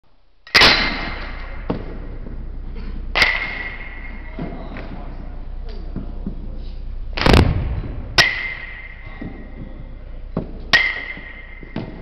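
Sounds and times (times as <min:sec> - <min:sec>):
bat pinging baseball: 0:03.2 - 0:04.1, 0:07.2 - 0:09.0, 0:10.7 - 0:12.0
heavy thud: 0:07.2 - 0:08.6.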